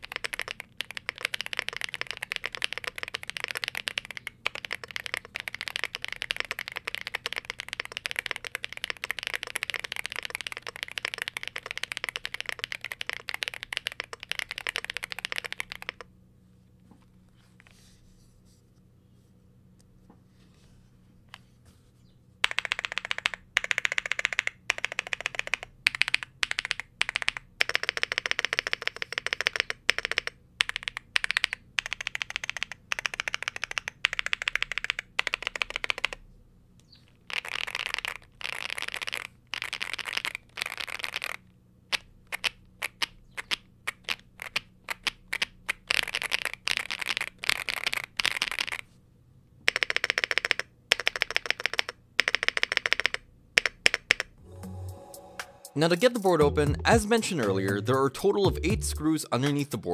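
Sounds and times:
mechanical keyboard typing: 0:00.0 - 0:16.1, 0:22.4 - 0:36.2, 0:37.3 - 0:48.8, 0:49.7 - 0:54.4.

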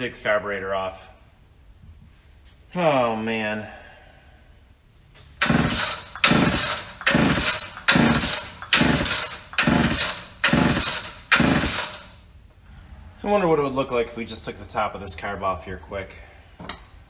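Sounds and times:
chainsaw engine turning over: 0:05.4 - 0:12.2
recoil starter cord yanks: 0:05.4 - 0:12.2.

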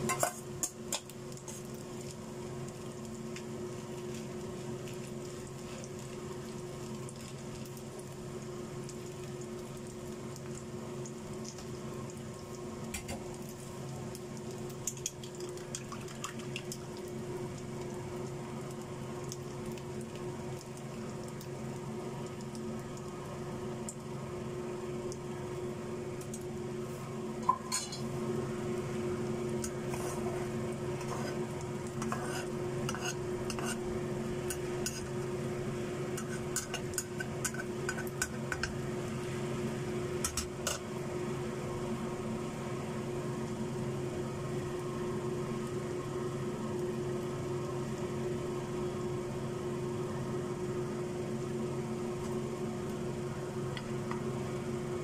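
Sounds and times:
egg sizzling in oil: 0:00.0 - 0:55.0
steady low hum: 0:00.0 - 0:55.0
metal spatula scraping a frying pan: 0:32.0 - 0:33.9.

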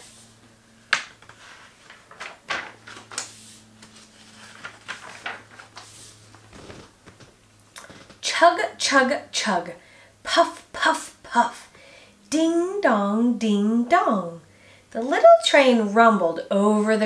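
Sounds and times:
book pages turning: 0:01.0 - 0:08.2.

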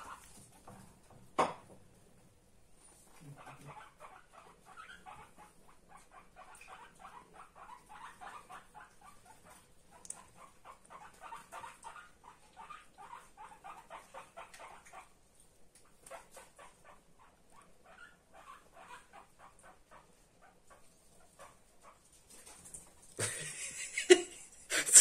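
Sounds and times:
guinea pig squeaking: 0:00.0 - 0:00.6, 0:02.9 - 0:15.2, 0:15.8 - 0:22.2.

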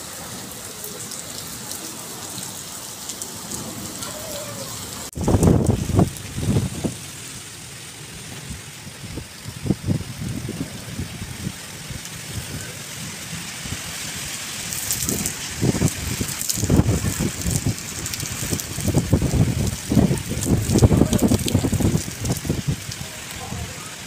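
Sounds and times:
wind and rain hiss: 0:00.0 - 0:24.0
wind buffeting microphone: 0:05.1 - 0:07.3, 0:08.1 - 0:23.7.

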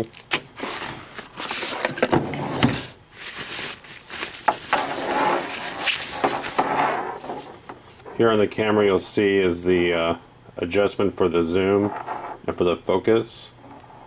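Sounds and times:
foam wrapping rustling: 0:00.6 - 0:02.0, 0:03.1 - 0:07.7
cardboard box scraping: 0:04.6 - 0:07.6.

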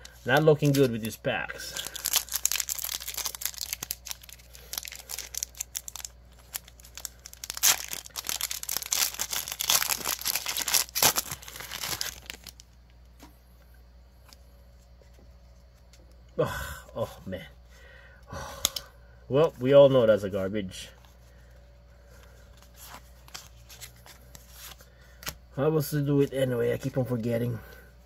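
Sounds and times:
foil wrapper tearing and crinkling: 0:00.0 - 0:12.6.

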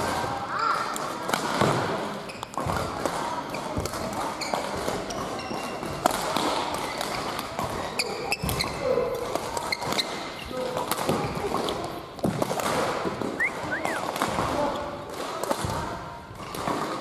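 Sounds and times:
shoes squeaking on court floor: 0:02.2 - 0:02.8, 0:03.5 - 0:06.1, 0:06.8 - 0:12.0, 0:13.3 - 0:14.2
racket hitting shuttlecock: 0:02.5 - 0:17.0.

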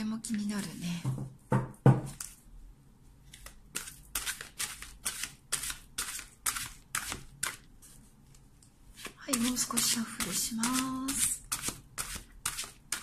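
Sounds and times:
cards being shuffled: 0:03.2 - 0:07.7.

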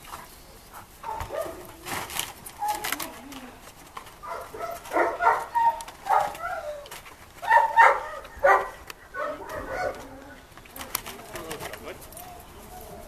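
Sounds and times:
dog barking: 0:01.0 - 0:01.6, 0:04.3 - 0:06.4, 0:07.4 - 0:10.0.

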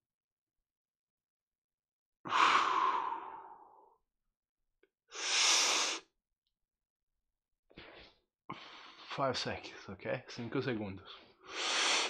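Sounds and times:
man breathing deeply: 0:02.3 - 0:04.0, 0:05.1 - 0:06.0, 0:07.7 - 0:09.1, 0:11.2 - 0:12.0.

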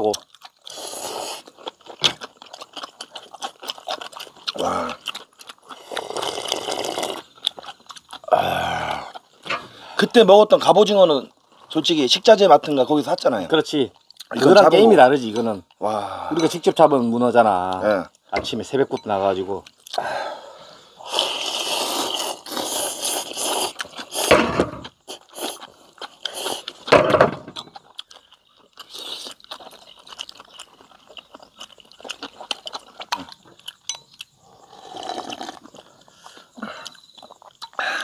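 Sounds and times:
noodles slurped and chewed: 0:00.0 - 0:10.1, 0:21.0 - 0:27.0, 0:27.7 - 0:37.8.

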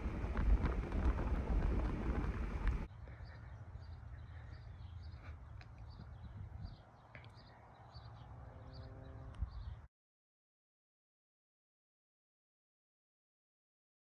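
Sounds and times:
low steady rumble: 0:00.0 - 0:02.9.

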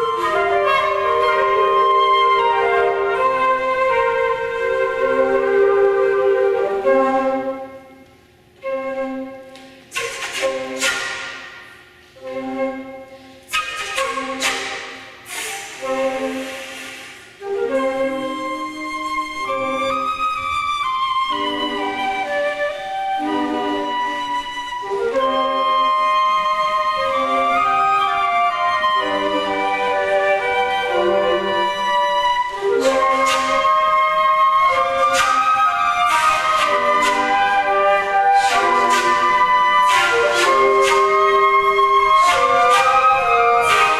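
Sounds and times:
flute choir playing chords: 0:00.0 - 0:43.9
breathy accented flute attacks: 0:15.2 - 0:17.5.

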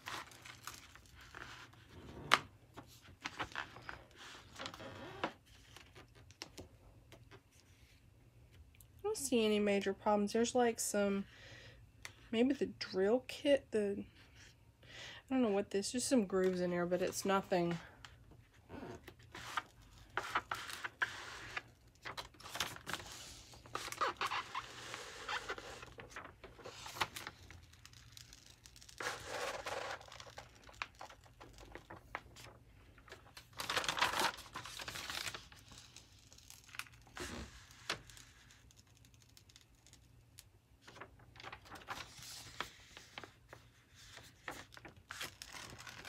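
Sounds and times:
plastic film crinkling and peeling: 0:00.0 - 0:01.9, 0:02.8 - 0:06.6, 0:18.9 - 0:46.0.

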